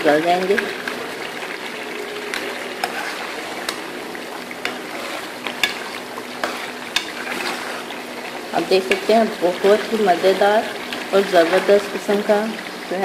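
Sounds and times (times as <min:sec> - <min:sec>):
curry bubbling and sizzling: 0:00.0 - 0:13.0
metal ladle scraping a pan: 0:02.3 - 0:12.3.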